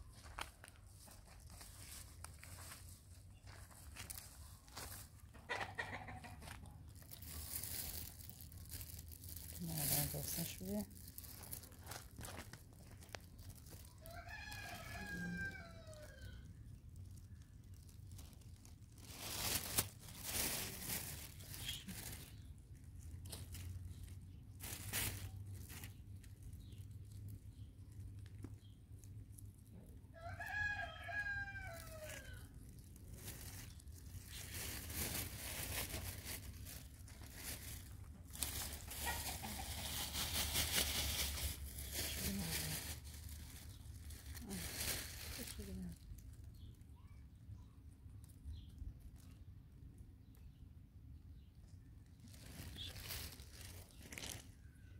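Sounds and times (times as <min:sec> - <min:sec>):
rooster crowing: 0:14.0 - 0:16.4, 0:30.2 - 0:32.4.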